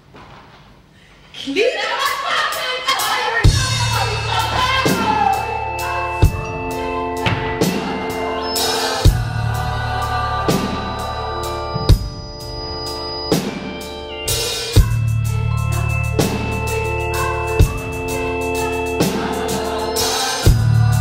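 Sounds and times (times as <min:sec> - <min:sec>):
drum kit beat: 0:02.9 - 0:21.0
band playing sustained chords: 0:03.4 - 0:21.0.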